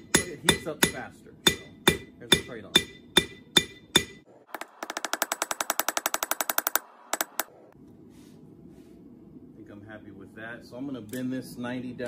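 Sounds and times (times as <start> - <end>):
hammer blows on anvil ringing: 0.0 - 4.2.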